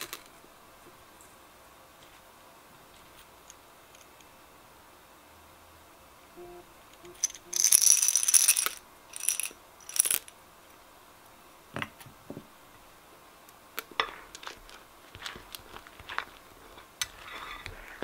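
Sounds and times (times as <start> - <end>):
candy rattling in plastic cup: 7.2 - 10.3
slime squishing: 14.2 - 18.0.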